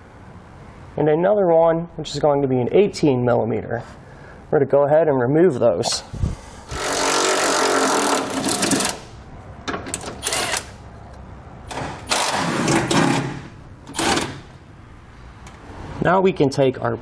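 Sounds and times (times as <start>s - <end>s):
impact driver running in bursts: 6.7s - 9.0s, 11.7s - 13.3s.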